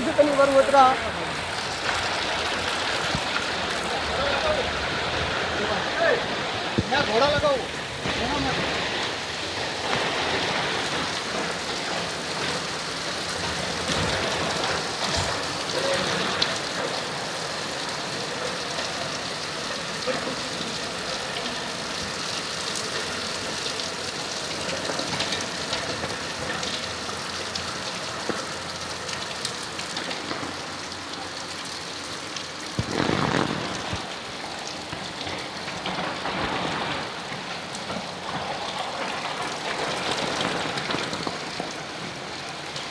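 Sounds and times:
heavy rain on flooded street: 0.0 - 42.9
rushing water: 0.0 - 42.9.

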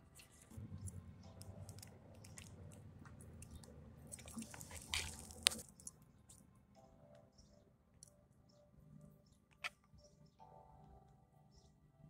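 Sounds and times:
cardboard box clicks and crinkles: 4.1 - 5.9.

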